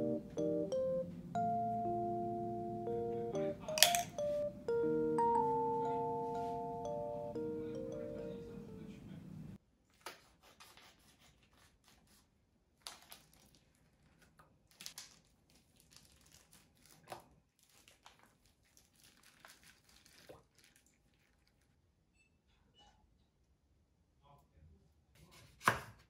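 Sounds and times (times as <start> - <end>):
plastic crinkling and tearing: 12.8 - 21.6.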